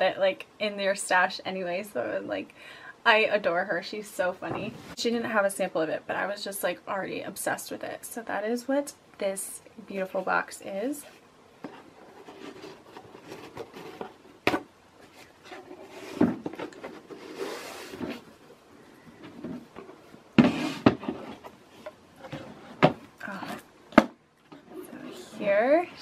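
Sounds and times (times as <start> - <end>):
cardboard box rustling: 11.7 - 18.4.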